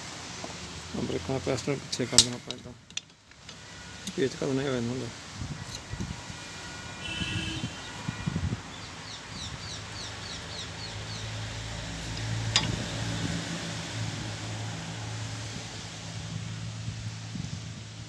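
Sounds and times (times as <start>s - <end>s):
sharp metallic click: 2.2s - 3.1s.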